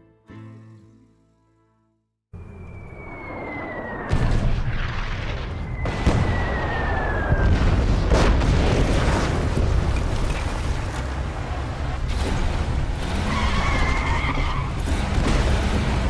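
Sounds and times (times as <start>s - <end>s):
artillery shells whistling: 2.4s - 8.4s, 12.1s - 16.0s
low rumble of battle: 2.4s - 16.0s
shell explosions: 4.0s - 10.3s.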